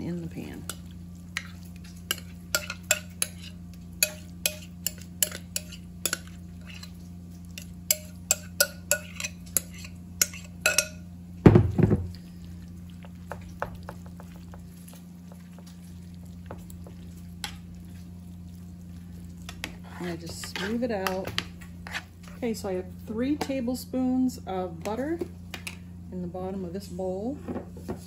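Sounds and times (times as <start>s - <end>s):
metal spoon clinking on glass bowl: 7.9s - 11.0s.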